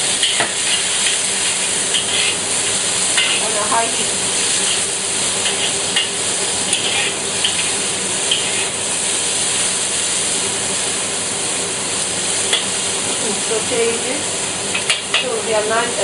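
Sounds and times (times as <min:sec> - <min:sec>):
onion sizzling in oil: 0:00.0 - 0:16.0
metal spatula scraping a wok: 0:00.2 - 0:03.7, 0:04.4 - 0:08.8.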